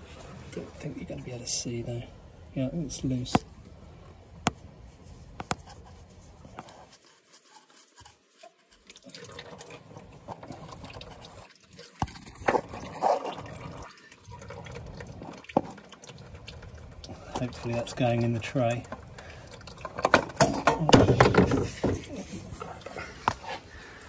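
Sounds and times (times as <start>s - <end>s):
oil dripping into drain tray: 8.8s - 22.1s.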